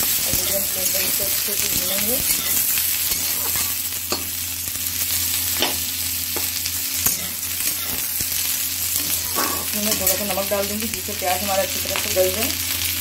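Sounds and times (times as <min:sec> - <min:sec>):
onions sizzling in hot oil: 0:00.0 - 0:13.0
spatula scraping a pan: 0:00.3 - 0:04.2, 0:07.0 - 0:08.2, 0:08.9 - 0:10.2.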